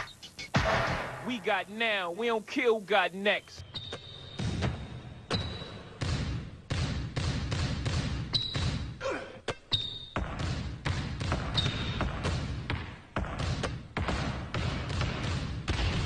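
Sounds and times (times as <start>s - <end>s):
basketballs bouncing on floor: 3.8s - 16.0s.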